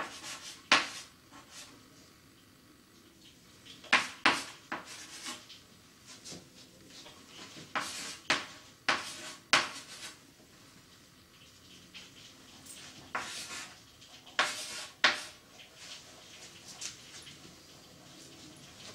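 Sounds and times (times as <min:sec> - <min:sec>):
chalk tapping and scraping on blackboard: 0:00.0 - 0:01.7, 0:03.8 - 0:05.5, 0:07.4 - 0:10.2, 0:13.0 - 0:15.4.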